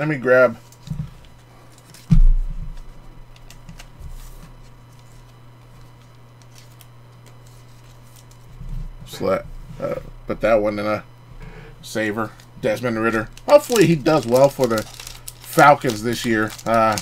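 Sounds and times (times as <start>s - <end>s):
low hum: 0.2s - 17.0s
thump: 2.1s - 2.4s.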